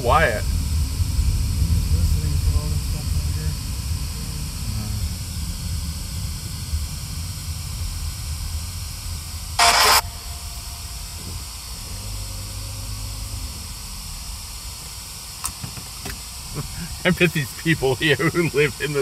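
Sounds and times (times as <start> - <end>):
car engine and road rumble: 0.0 - 19.0
faint hiss: 9.6 - 19.0.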